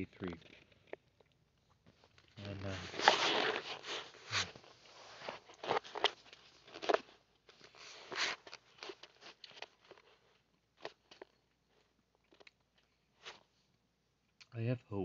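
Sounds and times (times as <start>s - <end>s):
rustles and clicks near microphone: 0.1s - 11.8s.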